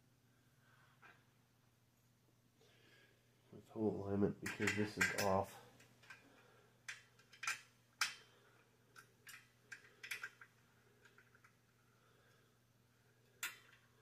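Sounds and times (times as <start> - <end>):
metal clicks of bolt and wrench: 4.4 - 6.2, 6.9 - 8.3, 8.9 - 11.6, 13.4 - 13.9.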